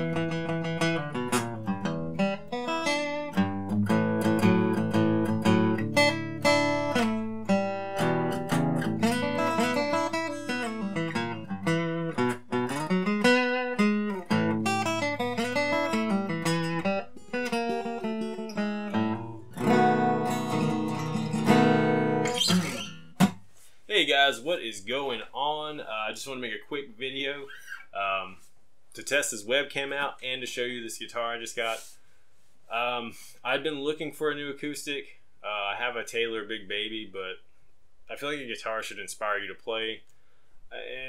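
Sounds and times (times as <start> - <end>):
acoustic guitar playing: 0.0 - 23.5.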